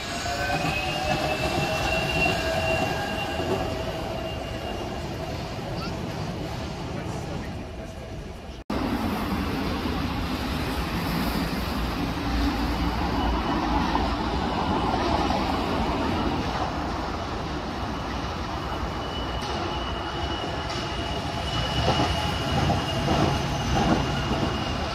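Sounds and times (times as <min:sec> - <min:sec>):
high wheel squeal: 0:00.0 - 0:06.0, 0:12.3 - 0:16.6, 0:17.4 - 0:24.9
suspension railway car rumble: 0:00.0 - 0:24.9.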